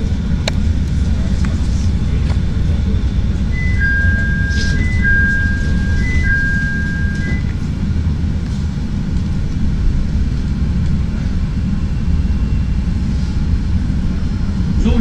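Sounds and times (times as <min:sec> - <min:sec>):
train wheels rumbling on rails: 0:00.0 - 0:15.0
high electric whine: 0:03.3 - 0:08.2.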